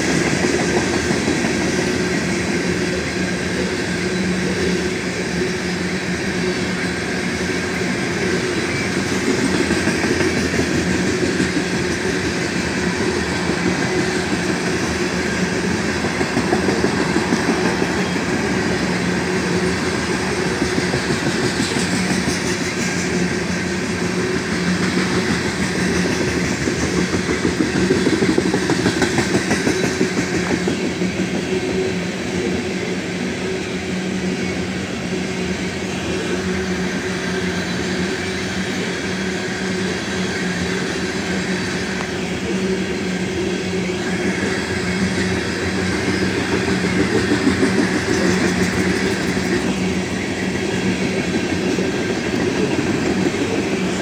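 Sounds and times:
train cars rumbling past: 0.0s - 54.0s.

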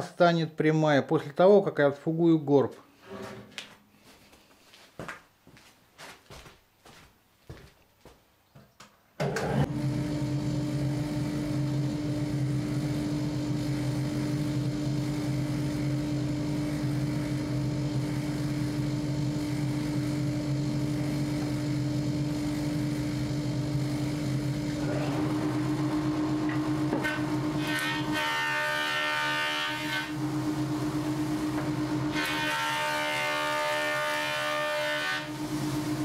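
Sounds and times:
electric jointer running: 9.2s - 36.0s.

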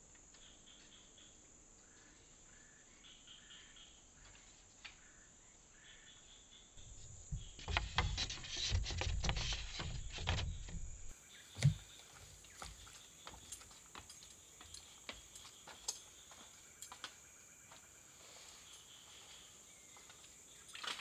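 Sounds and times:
irregular knocks and rustles: 6.8s - 21.0s.

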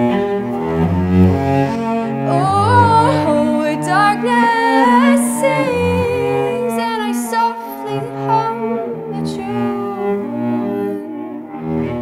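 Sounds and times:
cello bowed notes: 0.0s - 12.0s
woman singing: 2.1s - 11.3s.

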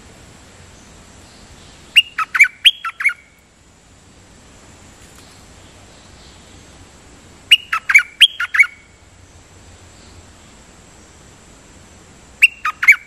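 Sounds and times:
songbird calling sharp falling notes: 1.4s - 3.4s, 7.5s - 9.0s, 12.4s - 13.0s.

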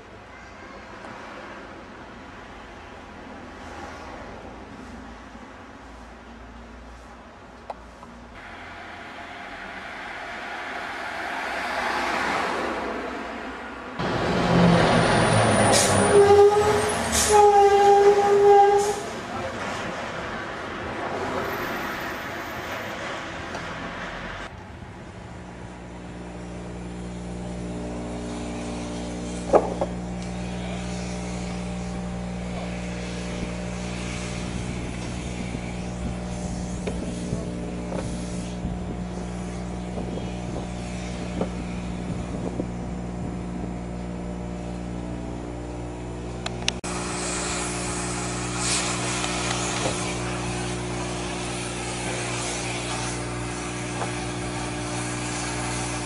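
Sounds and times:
steady hiss: 8.4s - 12.0s, 46.8s - 56.0s
machine engine running: 8.4s - 12.4s, 25.2s - 56.0s.

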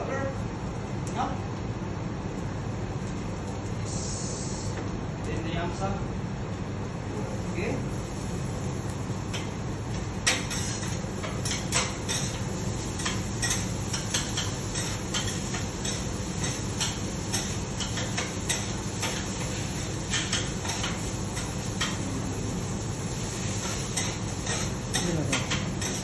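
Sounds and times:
low background hum: 0.0s - 26.0s
utensils tapping on griddle: 9.3s - 22.0s, 23.3s - 26.0s.

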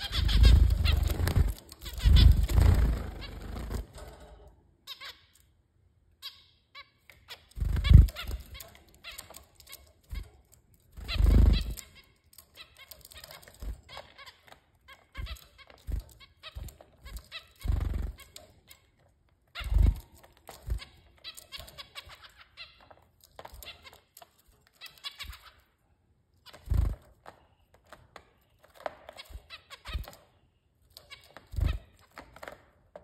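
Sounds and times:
finches honking calls: 0.0s - 3.6s
birds pecking at leaves: 0.0s - 3.9s
wing flutter: 0.0s - 4.4s, 7.6s - 8.6s, 11.0s - 11.8s.

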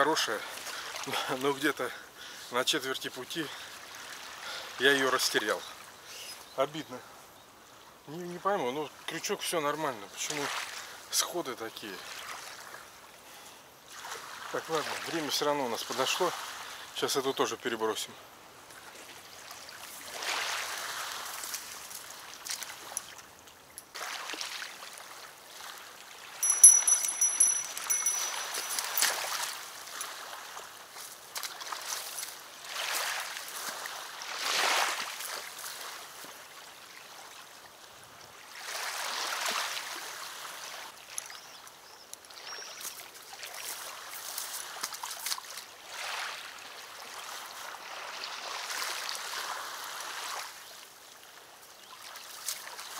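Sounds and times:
river water lapping at shore: 0.4s - 1.3s, 3.5s - 6.1s, 10.2s - 11.1s, 11.9s - 13.3s, 13.9s - 17.0s, 18.6s - 52.9s
high thin ringing tone: 26.4s - 29.3s.

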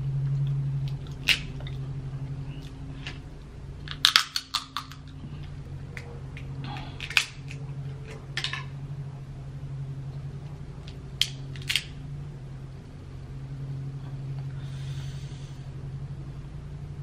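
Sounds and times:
steady low hum: 0.0s - 17.0s
crab shell cracking: 3.9s - 5.0s.

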